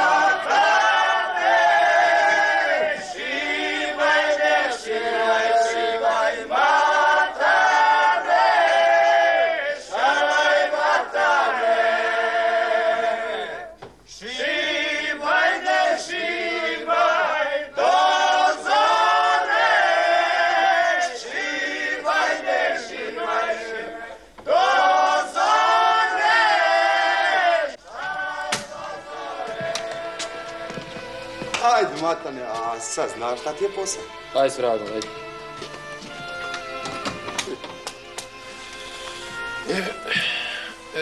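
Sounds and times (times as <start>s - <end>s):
group singing in chorus: 0.0s - 31.6s.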